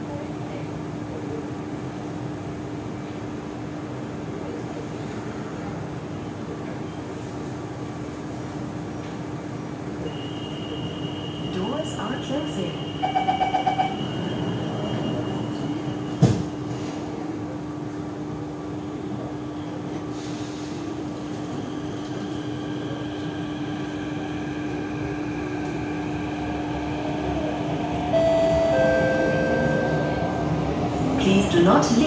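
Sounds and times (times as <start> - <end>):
train running hum: 0.0 - 32.0
train doors thumping shut: 16.1 - 17.1
door-closing beeps: 28.2 - 30.3.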